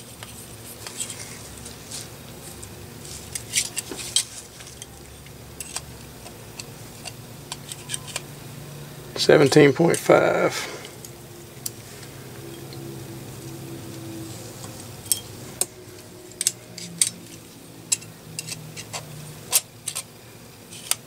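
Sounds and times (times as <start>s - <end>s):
metal tools clicking and clinking: 3.3s - 8.2s, 15.0s - 20.1s.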